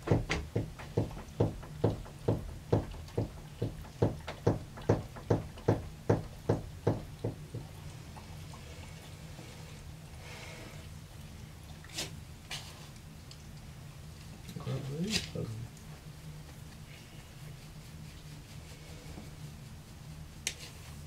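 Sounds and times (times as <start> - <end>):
rapid even knocking: 0.0 - 7.7
steady low hum: 0.0 - 21.0.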